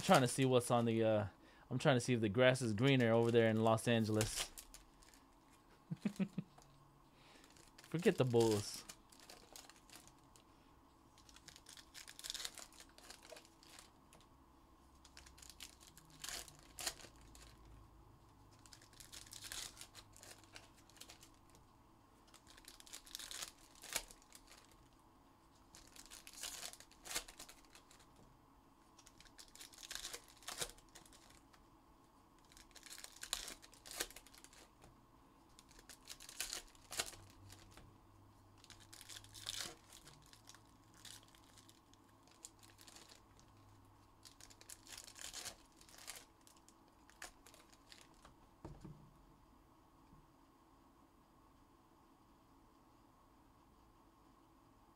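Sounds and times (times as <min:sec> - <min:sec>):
card pack wrappers tearing: 0:02.8 - 0:05.2, 0:07.4 - 0:10.2, 0:11.2 - 0:13.9, 0:15.0 - 0:17.7, 0:18.5 - 0:21.6, 0:22.3 - 0:24.8, 0:25.7 - 0:28.1, 0:29.0 - 0:31.5, 0:32.4 - 0:34.7, 0:35.6 - 0:37.8, 0:38.6 - 0:48.3.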